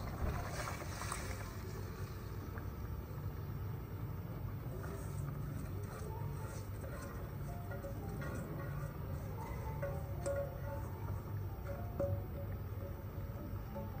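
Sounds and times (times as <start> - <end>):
soft splashes and scrapes: 0.0 - 2.8, 4.7 - 9.4.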